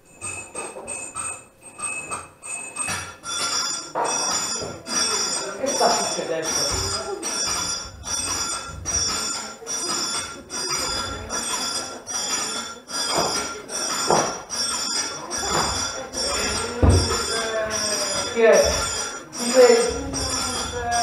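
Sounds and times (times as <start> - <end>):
bells ringing: 0.0 - 21.0
heavy thump: 16.5 - 17.3.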